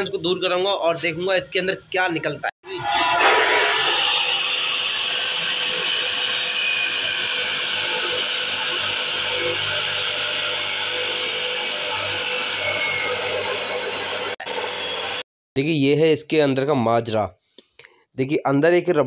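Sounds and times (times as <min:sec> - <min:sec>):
cut-off saw grinding steel: 0:02.8 - 0:15.2.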